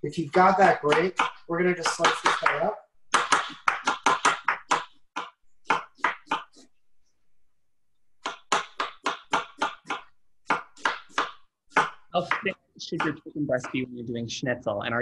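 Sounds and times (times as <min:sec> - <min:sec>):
knife slicing onion on board: 0:00.6 - 0:06.7.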